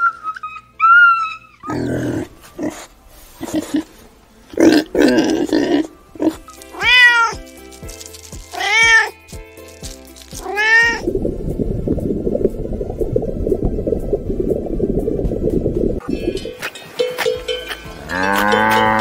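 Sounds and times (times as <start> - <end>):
soft background music: 0.4 - 19.0
pigs grunting: 1.6 - 6.9
cat meowing: 6.7 - 7.4, 8.5 - 9.2, 10.4 - 11.0
water bubbling: 10.8 - 16.6.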